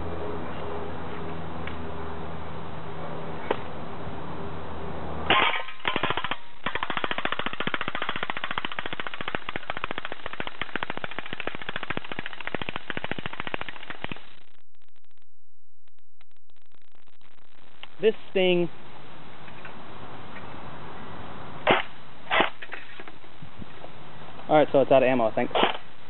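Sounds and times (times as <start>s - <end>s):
airsoft gun firing full-auto: 5.3s - 14.2s.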